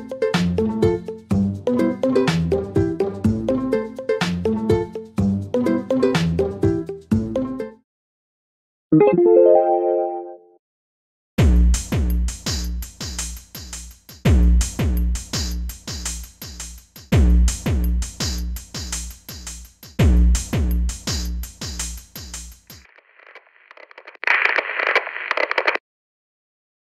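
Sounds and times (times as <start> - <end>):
crackling static noise: 22.7 - 25.8.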